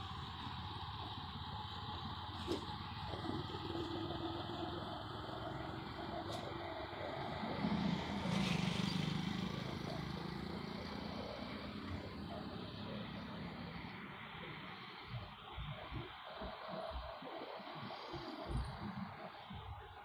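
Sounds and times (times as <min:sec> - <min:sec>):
hum of traffic engines and tyres: 0:00.0 - 0:20.0
vehicle engine passing: 0:02.5 - 0:15.0.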